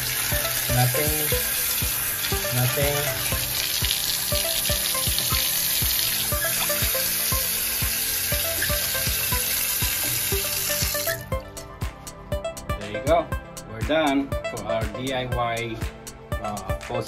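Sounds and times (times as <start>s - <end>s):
water running from faucet: 0.0s - 11.5s
background music with beat: 0.0s - 17.0s.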